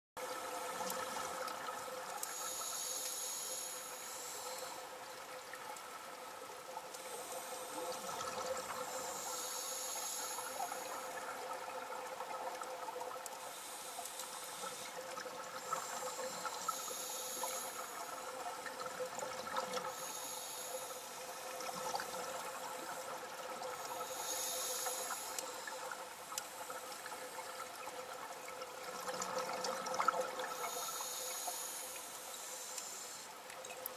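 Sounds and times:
faint continuous crackle: 0.2 - 33.9
steady hum: 2.2 - 5.0, 7.0 - 11.6, 13.3 - 18.6, 19.8 - 27.6
diver breathing through regulator: 19.9 - 21.1, 23.9 - 25.7.

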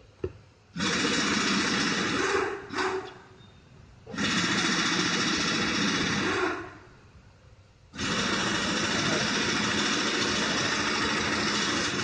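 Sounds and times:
car engine running: 8.0 - 12.0.

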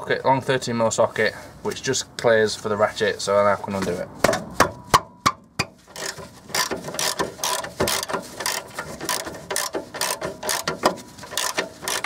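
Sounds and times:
socket ratchet clicking: 6.0 - 12.0.

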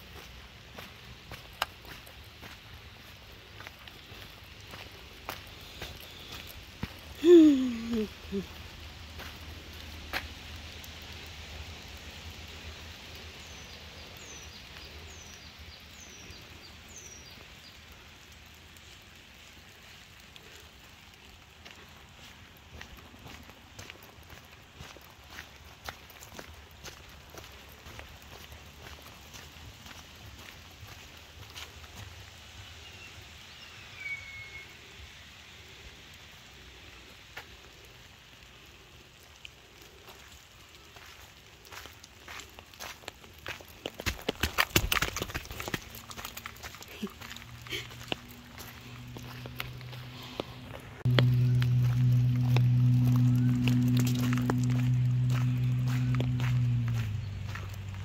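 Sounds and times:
steady rain falling: 0.0 - 58.0
bird calling high falling notes: 51.1 - 57.8.

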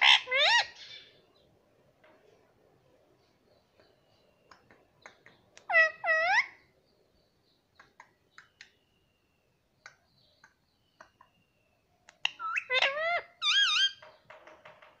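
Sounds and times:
parrot squeaky calls: 0.0 - 1.1, 5.6 - 6.6, 12.2 - 14.0
parrot clicks and chirps: 3.8 - 6.0, 7.7 - 8.8, 9.8 - 14.1.

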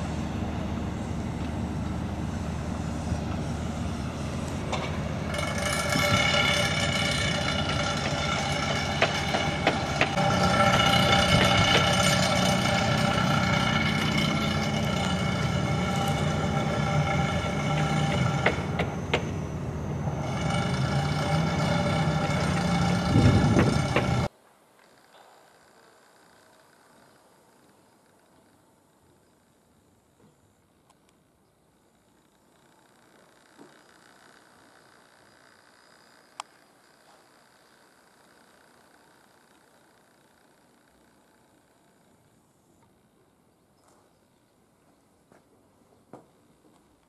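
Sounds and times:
train running: 0.0 - 24.3.

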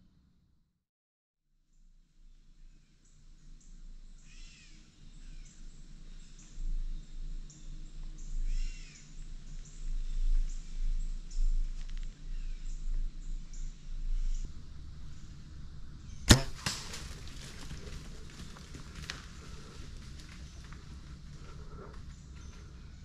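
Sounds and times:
low microphone rumble: 5.0 - 23.0.

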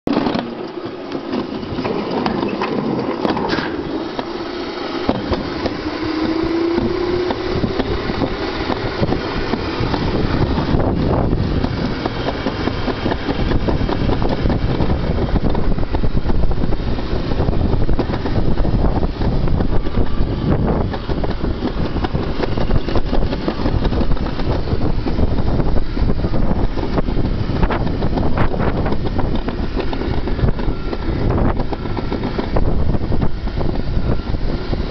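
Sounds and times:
sled rushing down metal track: 0.1 - 34.9
wind buffeting microphone: 1.3 - 34.9.

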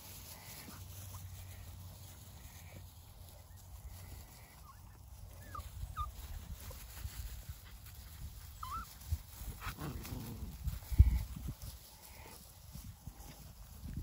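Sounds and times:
puppies whining: 3.3 - 6.9, 8.4 - 10.3.

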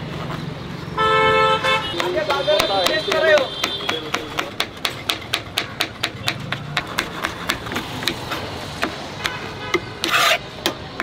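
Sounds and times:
knife tapping on cutting board: 2.0 - 8.2.

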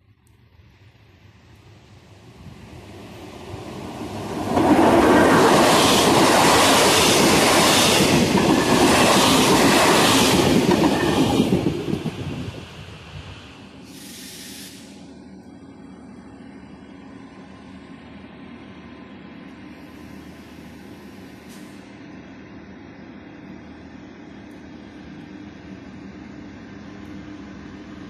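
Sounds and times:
coach wheels and rail noise: 0.0 - 28.0
electric train passing: 0.0 - 28.0
hiss burst: 13.1 - 15.1.

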